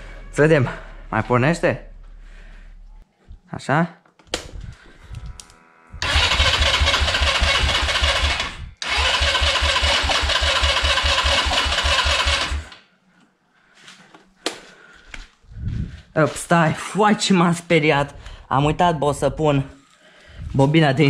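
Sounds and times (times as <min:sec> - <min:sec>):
electric starter cranking engine: 0:06.0 - 0:12.8.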